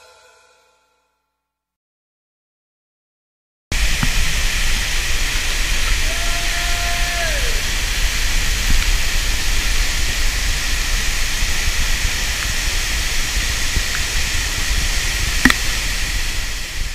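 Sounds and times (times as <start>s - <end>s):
waterfall roaring: 3.8s - 16.9s.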